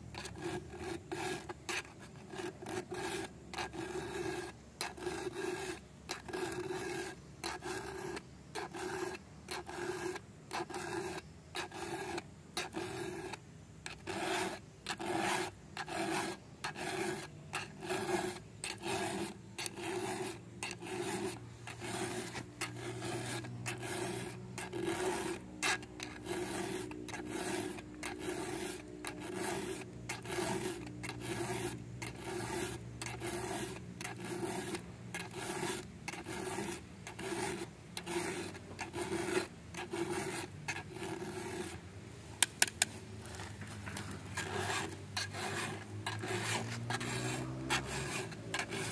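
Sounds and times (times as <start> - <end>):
file rasping on saw chain: 0.1 - 41.8, 42.7 - 48.9.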